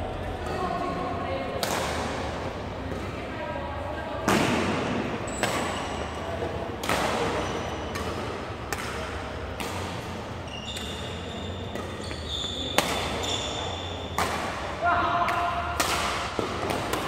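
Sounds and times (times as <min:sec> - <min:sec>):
rackets hitting shuttlecock: 0:01.6 - 0:03.2, 0:04.2 - 0:17.0
shoes squeaking on court floor: 0:05.3 - 0:06.3, 0:07.2 - 0:08.2, 0:09.8 - 0:14.2.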